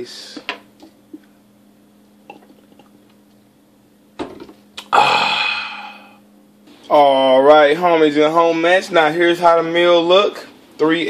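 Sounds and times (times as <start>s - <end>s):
man swallowing: 2.2s - 3.0s, 4.7s - 6.2s.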